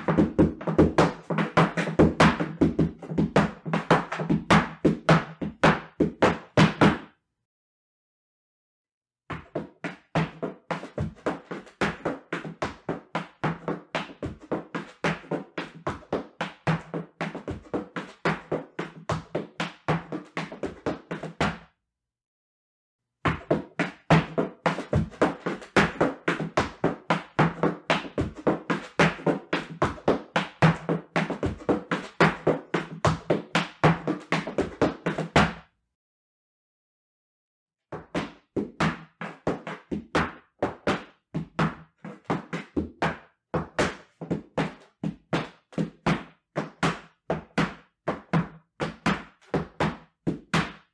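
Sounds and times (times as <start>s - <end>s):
boots stamping on wooden platform: 0.0s - 7.0s.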